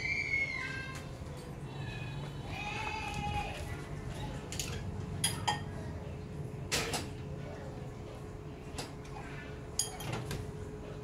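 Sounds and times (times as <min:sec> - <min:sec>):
kitchenware knocking and clinking: 0:04.6 - 0:05.7, 0:09.8 - 0:10.4.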